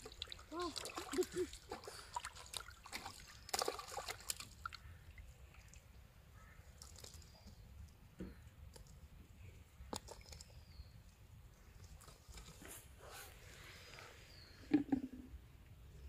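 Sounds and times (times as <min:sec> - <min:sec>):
fish splashing in water: 0:00.0 - 0:05.8.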